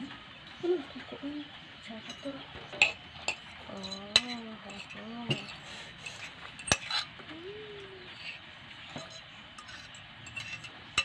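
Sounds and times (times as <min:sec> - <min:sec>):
metal fork clinking on ceramic plate: 0:09.0 - 0:10.8.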